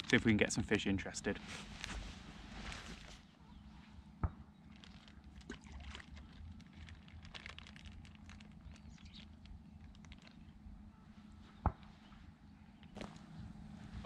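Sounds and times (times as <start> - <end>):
low wind rumble: 0.0 - 14.0
faint ticks and patters: 4.2 - 13.4.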